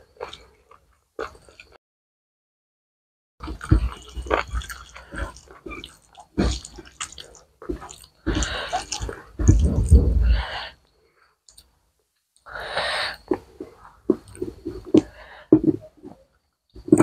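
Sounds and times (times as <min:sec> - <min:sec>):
wet chewing and squishing: 0:00.0 - 0:01.8, 0:03.4 - 0:10.4.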